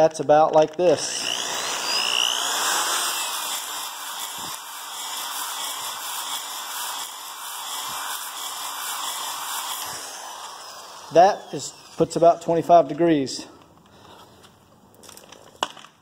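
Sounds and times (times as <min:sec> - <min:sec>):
drill honing whir: 0:00.7 - 0:12.3.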